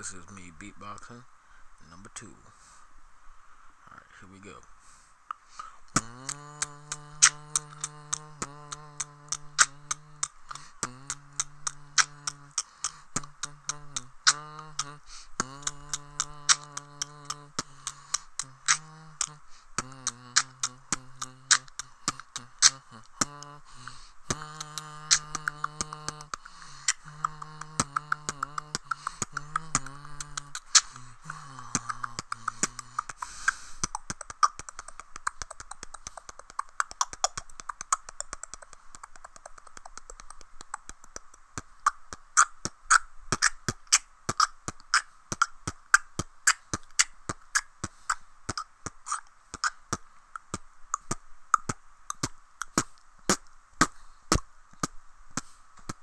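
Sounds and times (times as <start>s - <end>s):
beatboxing mouth clicks and snares: 0.0s - 1.2s, 4.4s - 56.0s
hummed bass line: 6.0s - 33.1s.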